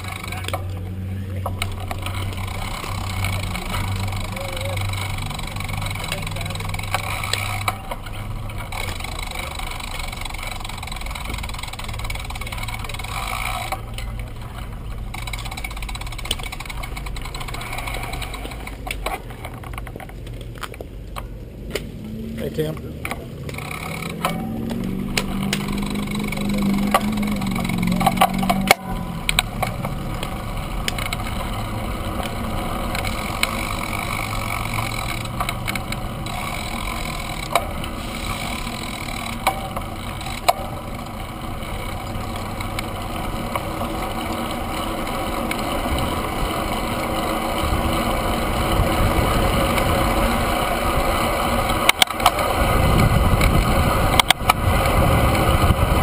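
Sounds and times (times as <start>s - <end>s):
bicycle clicks and rattles: 0.0s - 56.0s
tyre and wind rush: 52.4s - 56.0s.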